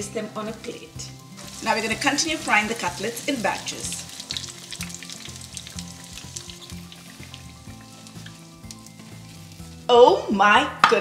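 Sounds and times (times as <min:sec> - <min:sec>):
oil sizzling and crackling: 0:00.0 - 0:10.4
soft background music: 0:00.0 - 0:11.0
oil popping: 0:01.1 - 0:09.9.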